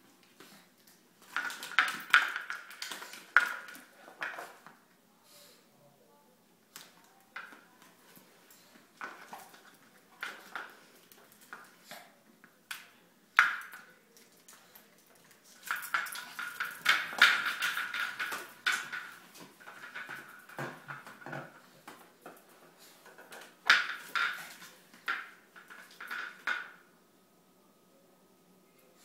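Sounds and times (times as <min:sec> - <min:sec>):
plastic bottle clattering on floor: 0:01.2 - 0:04.7, 0:15.6 - 0:26.8
bottle rolling on tile: 0:01.2 - 0:04.8, 0:15.2 - 0:26.8.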